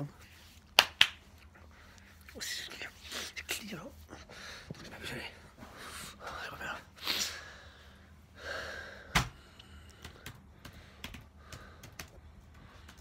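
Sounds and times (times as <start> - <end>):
breath: 7.2 - 13.0.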